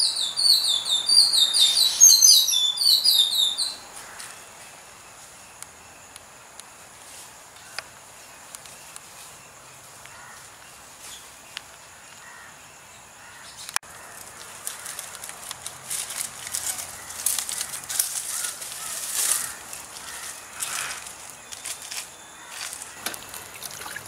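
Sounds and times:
dense rustling and crackling: 0:14.0 - 0:24.0.

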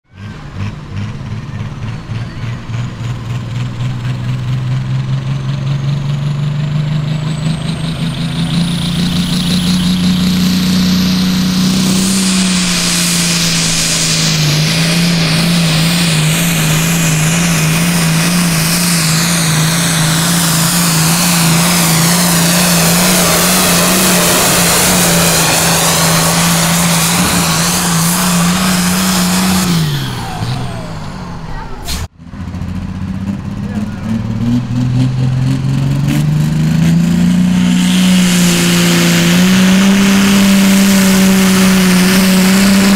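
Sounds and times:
diesel tractor engine revving: 0:00.0 - 0:42.9.

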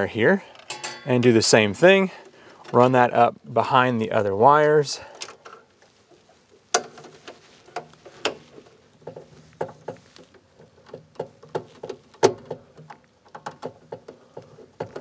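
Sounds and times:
wire and screwdriver tapping metal panel: 0:06.7 - 0:15.0.

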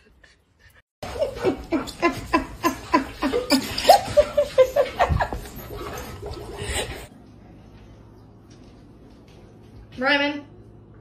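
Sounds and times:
person laughing hard: 0:01.0 - 0:05.5.

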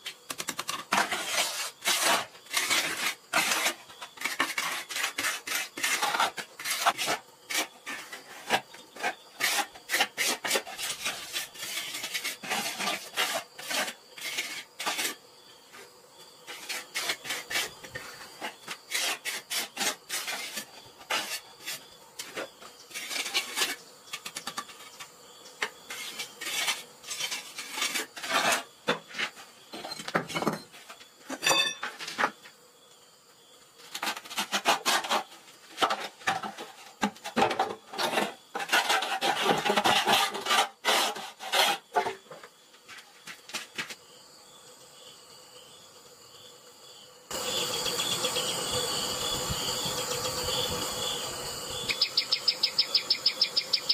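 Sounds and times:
trowel scraping wet mortar: 0:00.7 - 0:15.2, 0:16.5 - 0:25.0, 0:25.9 - 0:30.0, 0:33.9 - 0:42.2.

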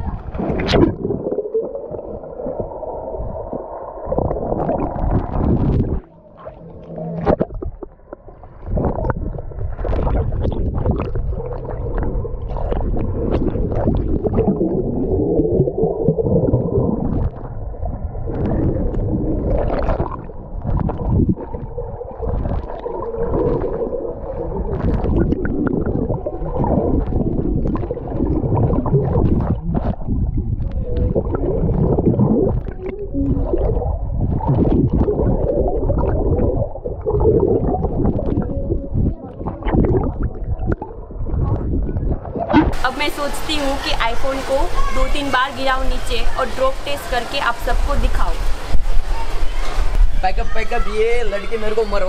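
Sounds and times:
bubbling: 0:00.0 - 0:52.0
muffled underwater rushing: 0:00.0 - 0:52.0
swimmer splashing: 0:42.6 - 0:52.0.

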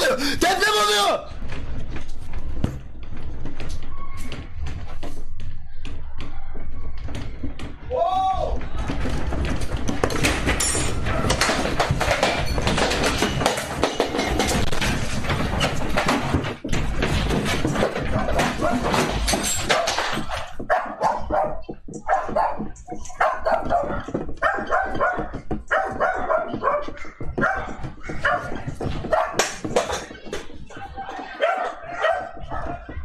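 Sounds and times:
house rattling and rumbling: 0:00.0 - 0:33.0
dog barking: 0:18.3 - 0:19.0, 0:20.6 - 0:29.6, 0:31.3 - 0:33.0.

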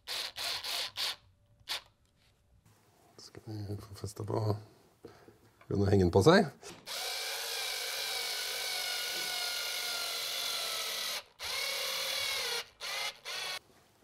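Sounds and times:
power drill driving screws: 0:00.0 - 0:01.9, 0:06.9 - 0:13.6.

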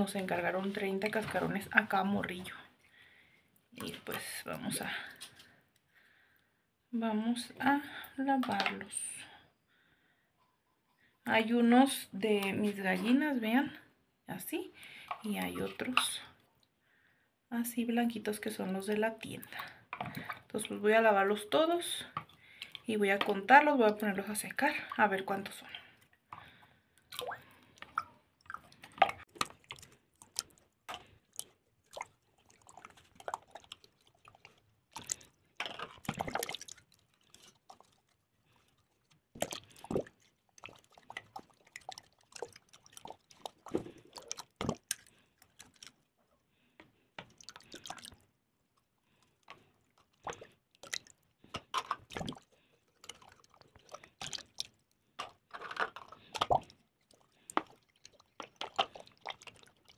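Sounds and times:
water splashing and dripping: 0:18.6 - 0:46.3, 0:47.2 - 0:59.9.

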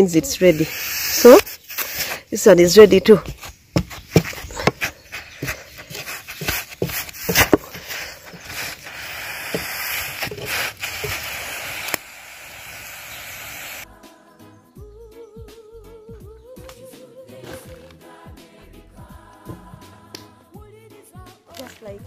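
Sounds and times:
steady hiss: 0:00.0 - 0:02.3, 0:05.4 - 0:13.8
wooden stick scraping metal saucepan: 0:00.1 - 0:12.0.

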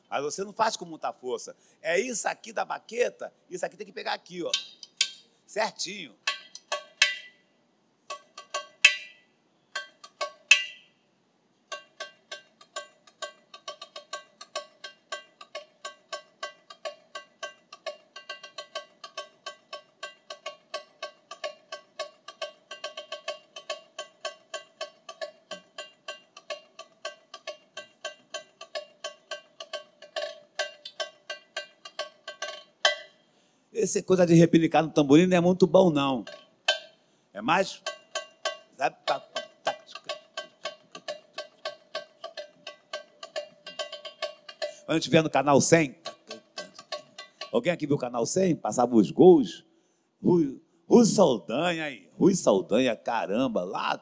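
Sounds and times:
tamborim struck with a stick: 0:04.4 - 0:05.3, 0:06.2 - 0:07.4, 0:08.1 - 0:10.9, 0:11.7 - 0:33.2, 0:35.9 - 0:37.0, 0:37.6 - 0:48.6.

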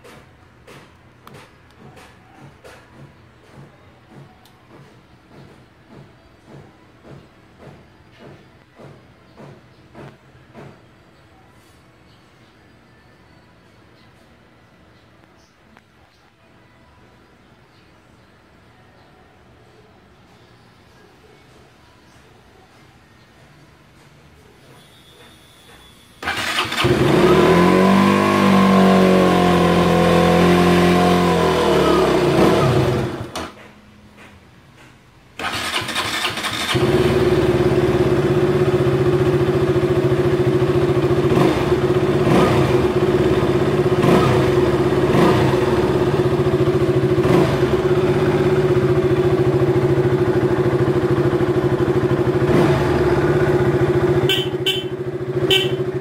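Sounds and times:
motorcycle engine starting and idling: 0:26.2 - 0:34.3, 0:35.4 - 0:56.0.

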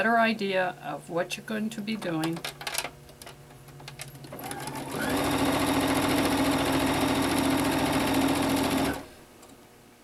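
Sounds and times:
sewing machine stitching: 0:04.2 - 0:09.1.

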